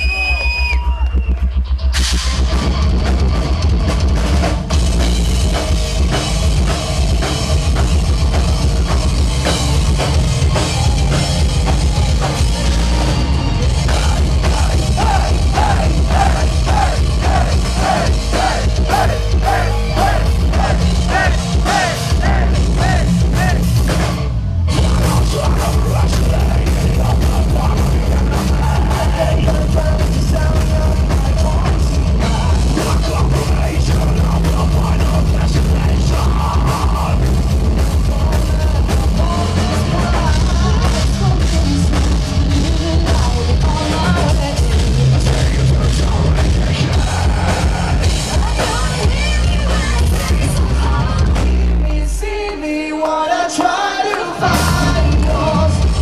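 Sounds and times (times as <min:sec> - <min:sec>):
heavy metal band playing: 0:00.0 - 0:56.0
pounding drums: 0:13.8 - 0:43.0.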